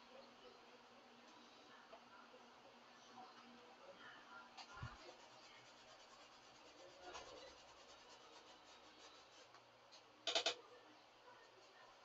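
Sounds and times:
paintbrush strokes on canvas: 4.8 - 9.5.

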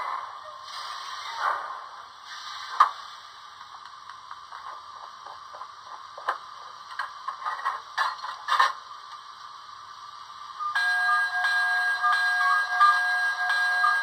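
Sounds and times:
steady ringing with fixed pitches: 10.7 - 14.0.

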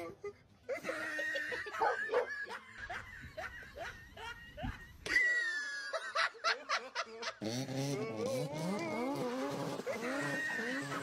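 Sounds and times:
person laughing: 0.0 - 7.4, 9.8 - 11.0.

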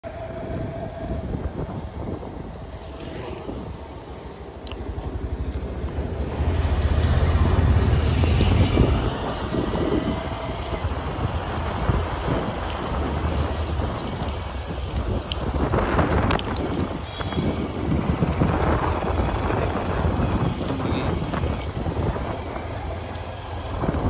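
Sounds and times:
motorbike rumble: 0.0 - 24.0
wind buffeting microphone: 0.0 - 24.0.

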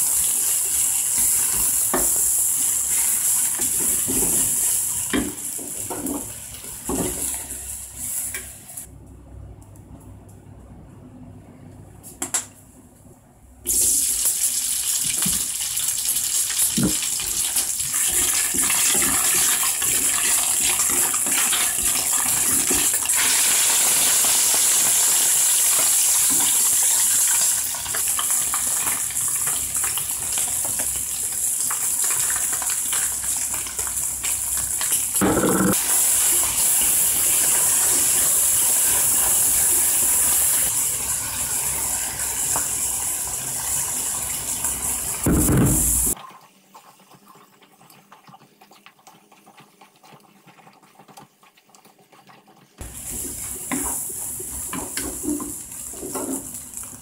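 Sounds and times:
food sizzling in hot oil: 0.0 - 8.9, 13.7 - 46.2, 52.8 - 57.0.

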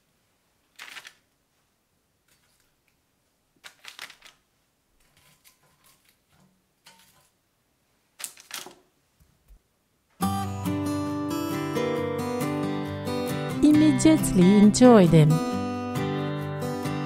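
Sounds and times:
paper rustling and crackling: 0.7 - 1.2, 2.2 - 2.8, 3.6 - 4.4, 5.0 - 7.3, 8.2 - 8.8.

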